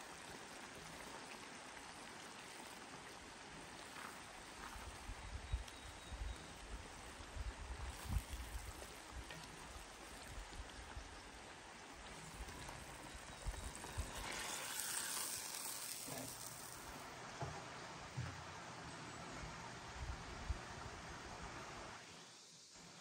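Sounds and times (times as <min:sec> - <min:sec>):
river water flowing: 0:00.0 - 0:05.1, 0:06.4 - 0:20.0
spatula stirring in wok: 0:12.0 - 0:16.9.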